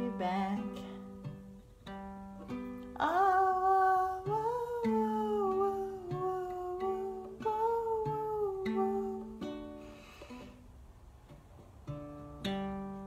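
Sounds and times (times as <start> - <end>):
ukulele plucking: 0.0 - 13.0
woman humming: 3.0 - 9.5.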